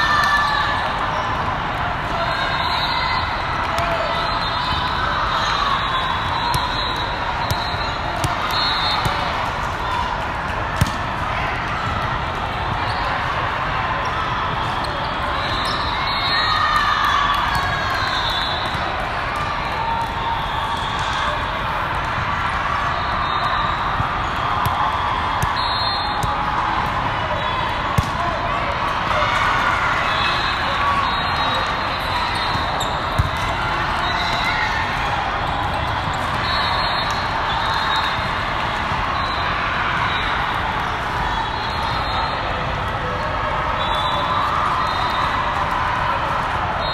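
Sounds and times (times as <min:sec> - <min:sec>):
din of many voices in a hall: 0:00.0 - 0:46.9
players shouting: 0:00.0 - 0:46.9
hand slapping volleyball: 0:10.7 - 0:11.1, 0:27.9 - 0:28.2, 0:33.2 - 0:33.5.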